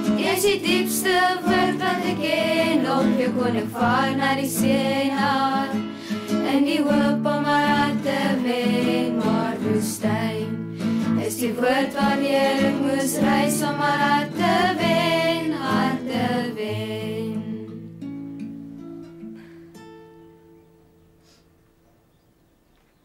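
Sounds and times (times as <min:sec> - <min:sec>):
children's choir singing: 0:00.0 - 0:17.8
acoustic guitar: 0:00.0 - 0:22.2.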